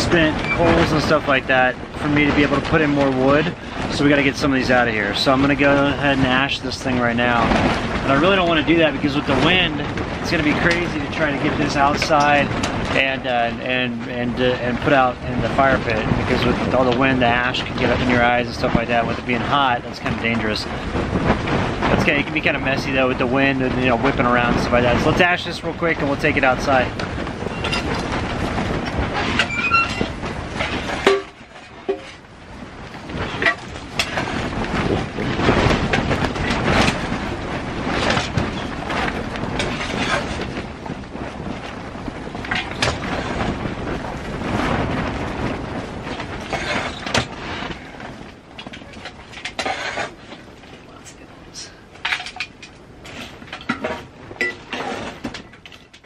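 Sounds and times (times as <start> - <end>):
wind rattling against tent: 0.0 - 56.0
stove door squeaking: 29.4 - 30.2
metal clank: 31.0 - 32.2.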